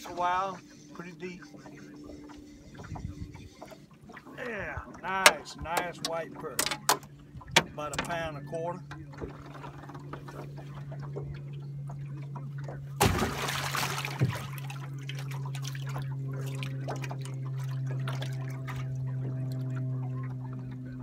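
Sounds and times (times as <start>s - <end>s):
trolling motor humming: 0.0s - 21.0s
water splash: 13.0s - 19.0s.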